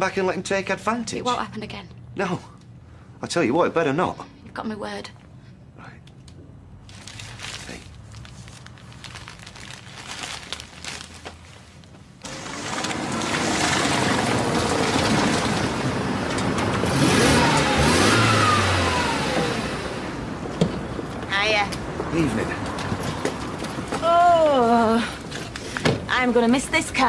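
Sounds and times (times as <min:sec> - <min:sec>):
car engine and tyres driving: 0:10.8 - 0:27.0.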